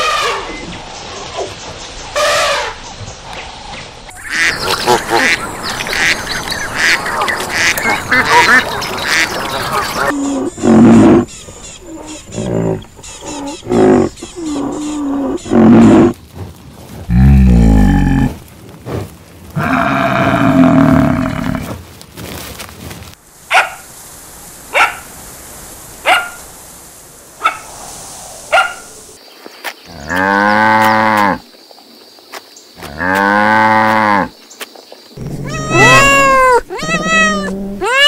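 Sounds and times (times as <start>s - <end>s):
small dog barking: 23.5s - 23.9s, 24.7s - 25.0s, 26.0s - 26.4s, 28.5s - 28.9s
water buffalo lowing: 35.2s - 37.9s.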